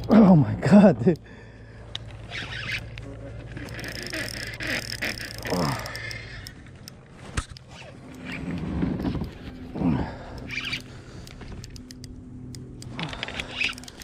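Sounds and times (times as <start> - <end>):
fishing reel gears whirring: 2.1 - 14.0.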